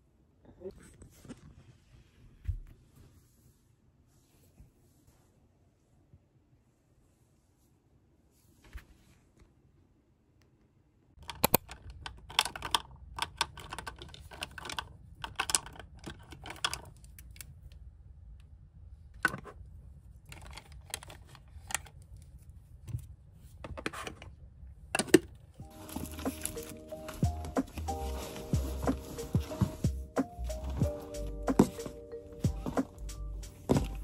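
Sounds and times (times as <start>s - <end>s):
cosmetics clicking and clattering: 11.2s - 17.0s, 20.3s - 22.0s, 25.0s - 28.4s.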